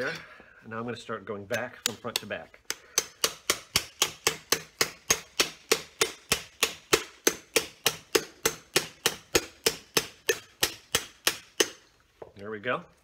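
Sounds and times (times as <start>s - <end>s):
hammer striking metal spatula: 1.5s - 11.8s.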